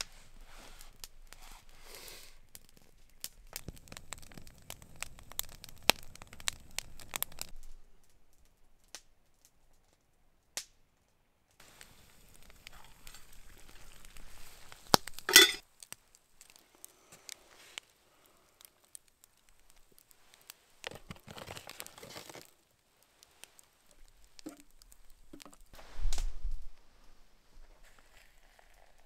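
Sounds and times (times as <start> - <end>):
metal spoon scraping in pot: 15.3 - 15.6
sharp metal clatter: 15.3 - 15.6.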